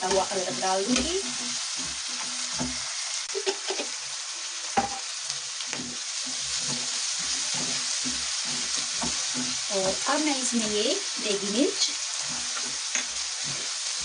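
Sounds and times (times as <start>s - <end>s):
vegetables sizzling in hot oil: 0.0s - 14.0s
wooden spatula scraping a pan: 0.0s - 14.0s
spatula knocking on pan: 4.8s - 5.1s, 5.7s - 10.0s.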